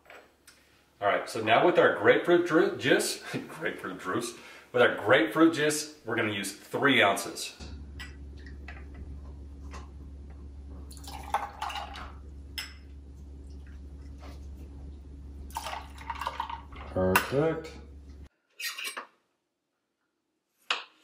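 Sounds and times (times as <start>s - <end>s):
steady low hum: 1.1s - 18.3s
juice pouring and splashing: 10.8s - 12.3s, 15.4s - 17.6s.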